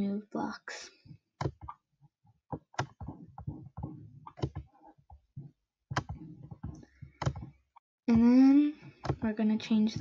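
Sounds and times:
computer mouse clicks: 2.5s - 4.7s, 5.9s - 7.6s.

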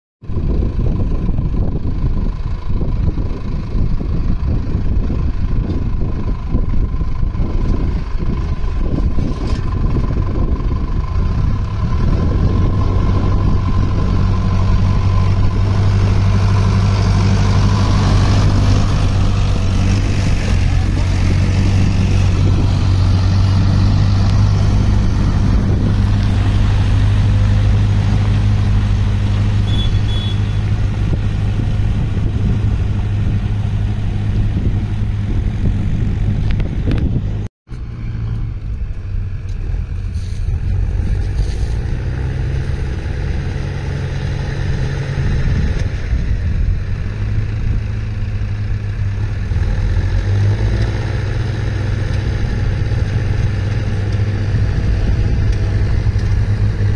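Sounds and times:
tractor diesel engine under load: 0.2s - 56.9s.

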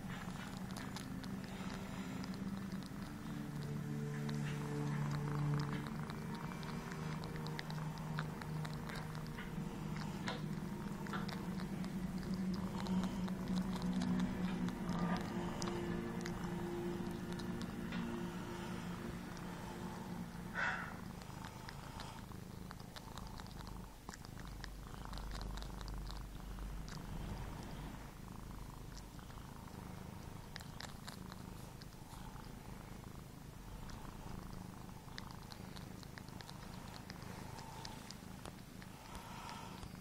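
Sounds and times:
wet mouth clicks: 0.0s - 18.1s, 20.6s - 27.8s
kitten purring: 0.0s - 40.0s.

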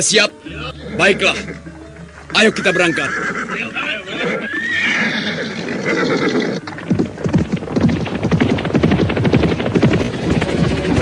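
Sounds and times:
horse whinnying: 0.5s - 7.0s
clattering hoofbeats of horses: 1.0s - 11.0s.

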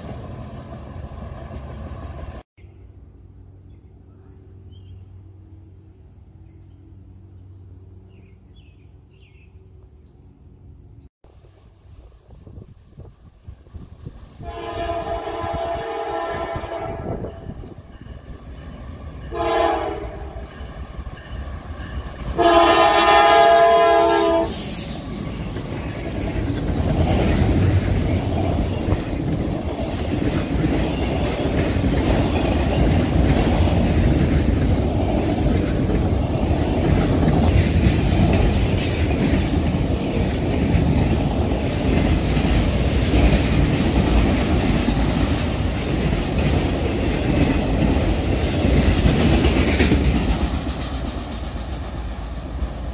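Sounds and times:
train rumbling past: 0.0s - 52.9s
train horn blasts: 14.4s - 17.8s, 19.2s - 20.7s, 22.3s - 24.7s
wheels clacking over rail joints: 24.9s - 52.9s.

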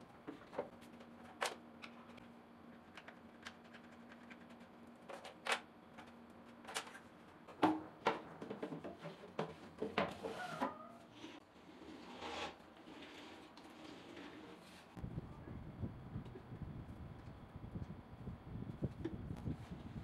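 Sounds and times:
drawer scraping: 8.5s - 14.9s.

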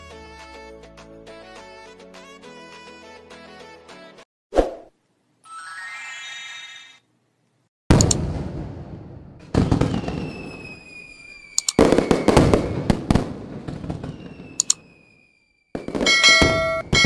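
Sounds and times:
fireworks booming bursts: 7.9s - 17.0s
falling whistles: 9.8s - 12.9s, 13.9s - 17.0s
bell ringing: 16.1s - 17.0s.

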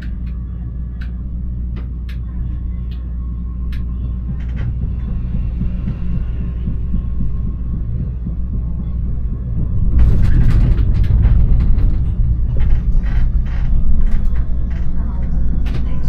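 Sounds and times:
tram rumbling on rails: 0.0s - 16.0s
sharp clicks and clacks: 9.5s - 16.0s.

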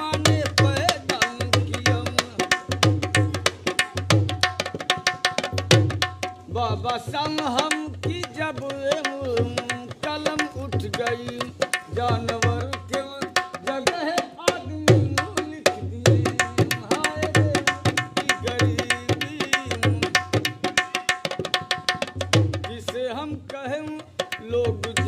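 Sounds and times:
hand drum playing: 0.2s - 6.4s.

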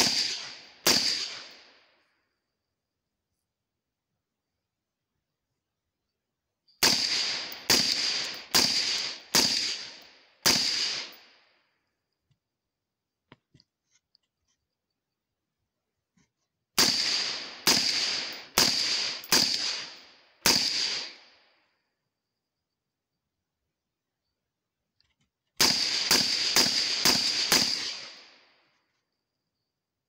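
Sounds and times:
suppressed rifle shots: 0.0s - 1.7s, 6.8s - 11.3s, 16.8s - 21.2s, 25.6s - 28.4s.

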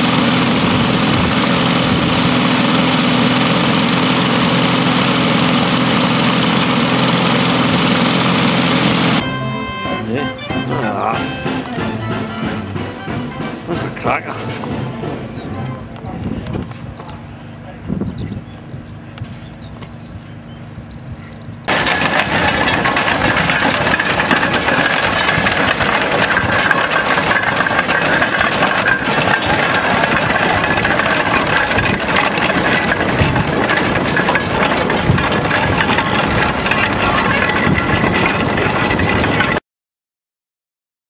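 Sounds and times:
low engine hum: 0.0s - 39.6s.

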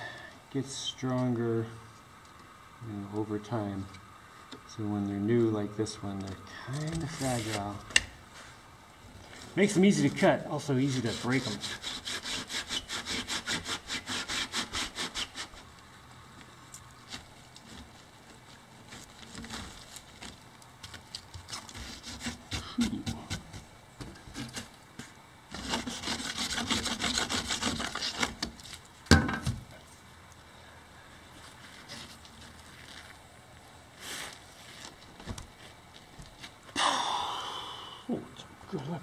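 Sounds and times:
quiet scraping: 4.7s - 13.0s
hand saw rasping through block: 10.9s - 15.6s, 21.5s - 23.4s, 25.5s - 28.5s.

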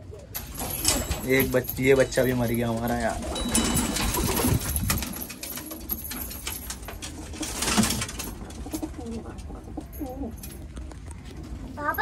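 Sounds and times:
scratching and rustling: 0.4s - 12.0s
pigeons cooing: 7.2s - 12.0s.

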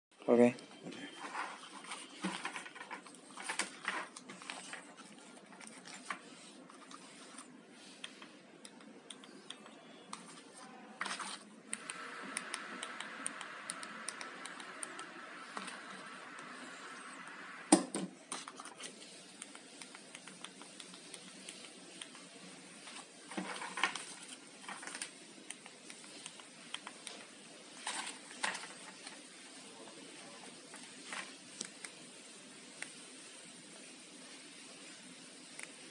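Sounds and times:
faint steady hiss: 1.8s - 35.9s
plastic remote controls clicking: 11.1s - 16.5s.

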